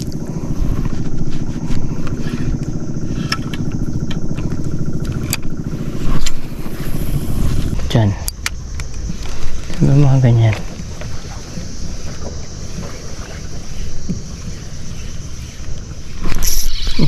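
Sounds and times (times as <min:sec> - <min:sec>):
small engine running: 0:00.0 - 0:17.0
sharp clicks: 0:08.2 - 0:09.8.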